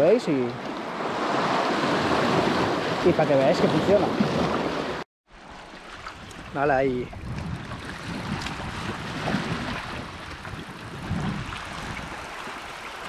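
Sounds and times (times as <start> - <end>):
surf washing against rocks: 0.0 - 13.0
wind buffeting microphone: 6.0 - 13.0.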